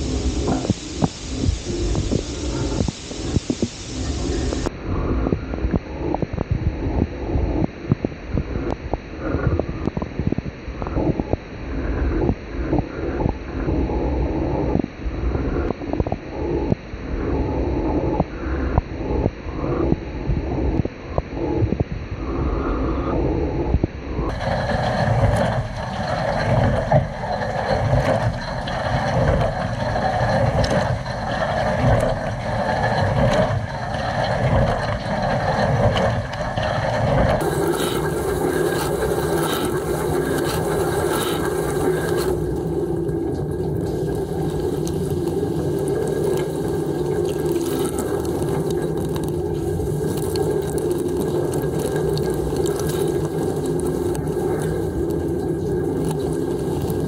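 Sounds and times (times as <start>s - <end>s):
water spraying inside dishwasher: 37.2s - 57.0s.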